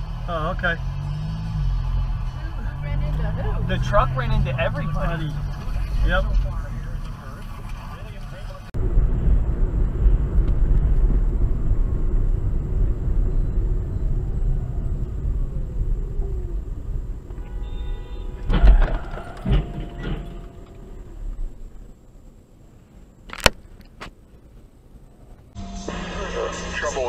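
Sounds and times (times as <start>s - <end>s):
car engine and road rumble: 0.0s - 27.0s
vehicle crash impacts: 1.3s - 22.2s
horn-like tone: 17.3s - 21.2s, 25.6s - 27.0s.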